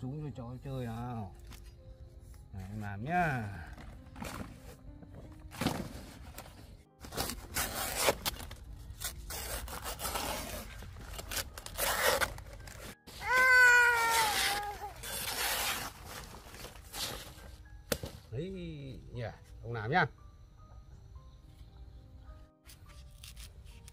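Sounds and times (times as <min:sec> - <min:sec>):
banana leaves rustling and scraping: 0:03.5 - 0:18.2
toddler yelling: 0:13.2 - 0:15.0.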